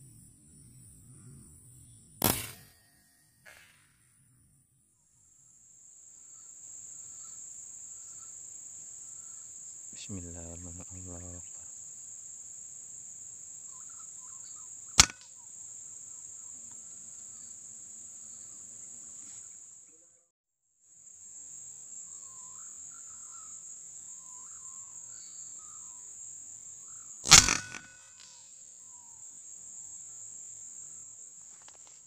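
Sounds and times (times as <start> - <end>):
insects droning: 0.0 - 20.2, 20.8 - 32.0
air rifle shot: 2.2 - 2.7, 15.0 - 15.2, 27.2 - 28.1.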